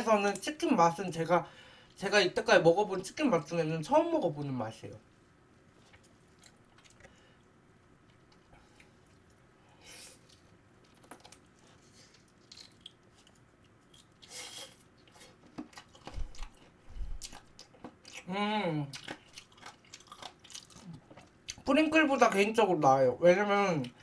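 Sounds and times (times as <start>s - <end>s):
chewing and biting fried chicken: 5.8s - 7.2s, 10.1s - 18.3s, 18.9s - 21.7s.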